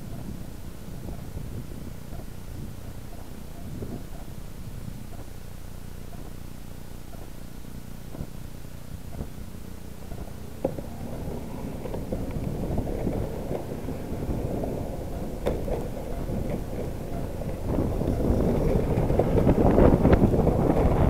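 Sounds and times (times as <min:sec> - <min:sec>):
wind buffeting microphone: 0:00.0 - 0:05.2, 0:10.0 - 0:21.0.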